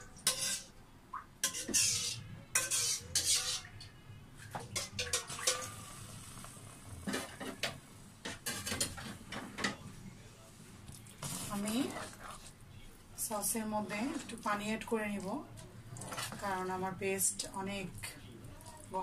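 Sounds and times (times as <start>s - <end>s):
spatula scraping and knocking pan: 0.2s - 0.7s, 1.4s - 3.7s.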